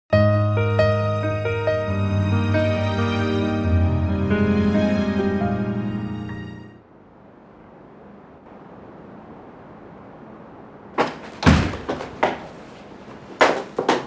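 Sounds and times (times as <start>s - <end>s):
door heavy thud: 11.0s - 12.5s.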